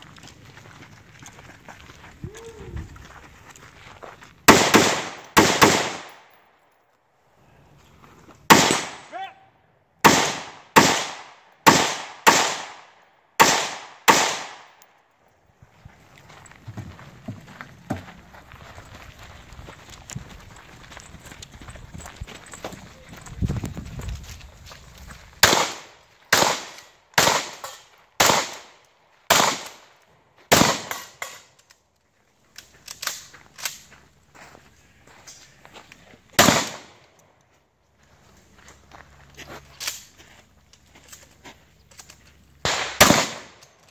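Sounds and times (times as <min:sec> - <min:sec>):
running footsteps on grass: 0:00.0 - 0:04.6, 0:15.5 - 0:26.4, 0:32.1 - 0:42.6
rifle shots echoing: 0:04.5 - 0:06.4, 0:08.5 - 0:09.2, 0:10.0 - 0:14.8, 0:25.4 - 0:29.9, 0:30.5 - 0:31.2, 0:36.4 - 0:37.0, 0:42.6 - 0:43.6.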